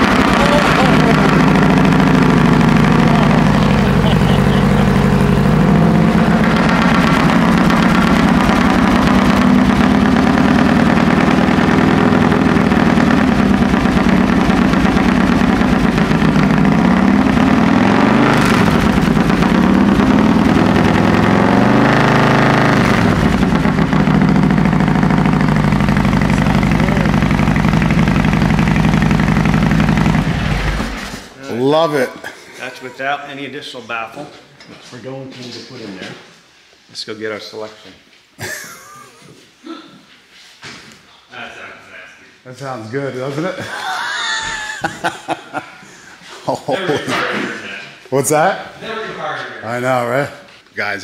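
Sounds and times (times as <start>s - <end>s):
motorcycle engine idling and revving: 0.0s - 31.3s.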